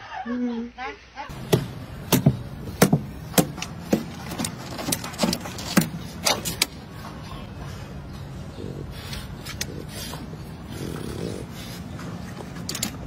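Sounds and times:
dog claws tapping and scraping: 1.3s - 7.2s, 11.8s - 13.0s
steady low hum: 1.3s - 13.0s.

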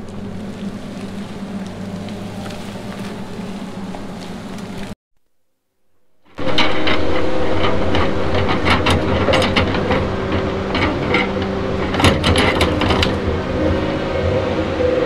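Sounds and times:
knocks and clanks of logs: 6.3s - 13.4s
diesel engine running: 6.4s - 15.0s.

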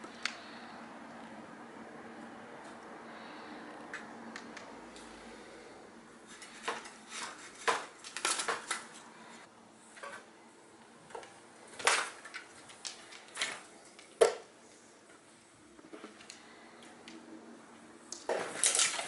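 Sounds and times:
window blind slats rattling: 6.3s - 9.1s, 18.3s - 19.0s.

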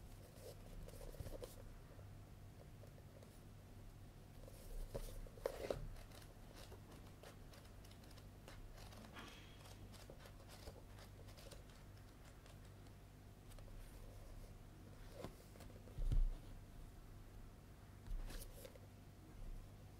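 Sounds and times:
book pages flipping: 4.5s - 14.4s, 15.0s - 16.5s, 18.0s - 18.8s.

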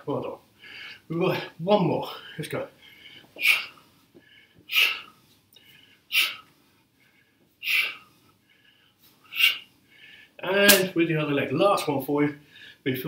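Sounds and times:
sharp forceful exhaled breaths: 2.8s - 10.4s.

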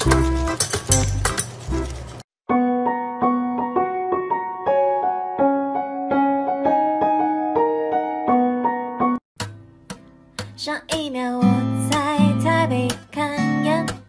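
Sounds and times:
piano melody: 0.0s - 9.2s.

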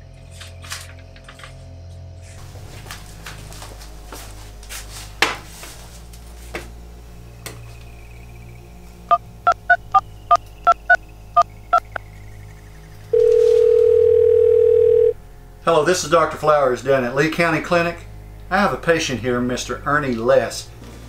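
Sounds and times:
phone keypad dial tones: 13.2s - 15.2s
phone ringback tone: 13.2s - 15.2s.

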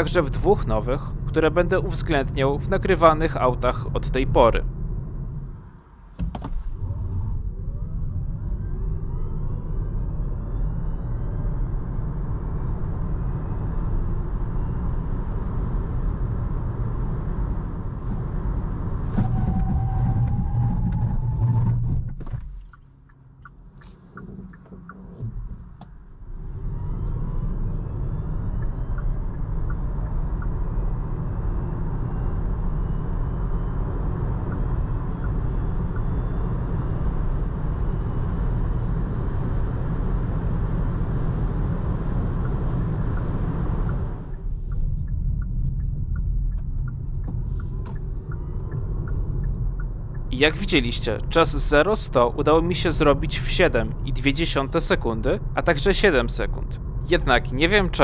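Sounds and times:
tyre and road noise: 13.6s - 32.0s
faint ticks: 42.4s - 50.3s.

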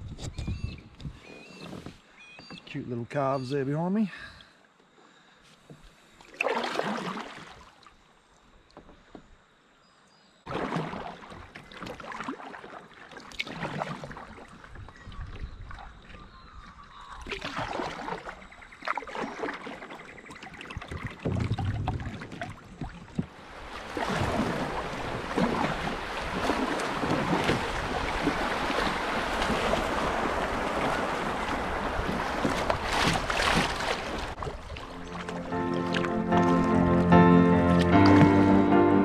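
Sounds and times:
paddle strokes splashing: 5.4s - 8.0s, 10.5s - 39.0s
water slapping hull: 6.2s - 8.0s, 10.5s - 39.0s
river water rushing: 23.4s - 38.9s
background music: 34.9s - 39.0s.

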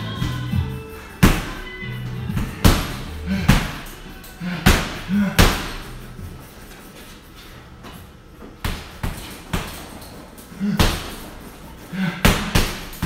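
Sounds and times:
punches thudding on heavy bag: 1.2s - 5.9s, 10.6s - 11.3s, 12.0s - 13.0s.

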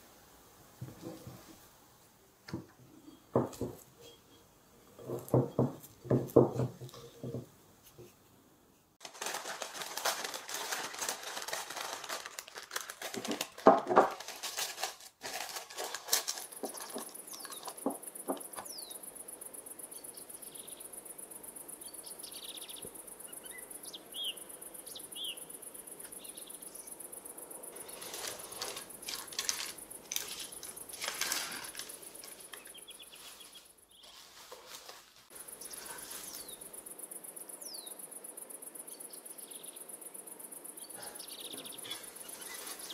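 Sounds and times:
crickets chirping: 15.2s - 42.9s.

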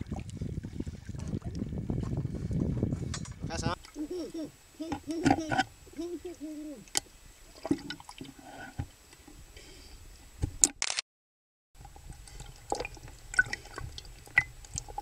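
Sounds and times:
water sloshing and dripping: 6.8s - 9.0s, 11.8s - 15.0s
small clicks and splashes: 11.8s - 15.0s.

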